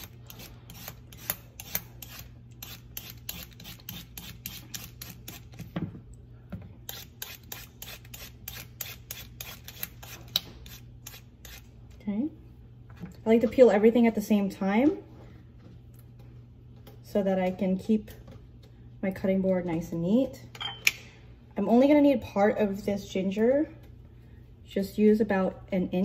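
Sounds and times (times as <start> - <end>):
vegetable peeler scraping carrot: 0.0 - 5.6, 6.8 - 11.7.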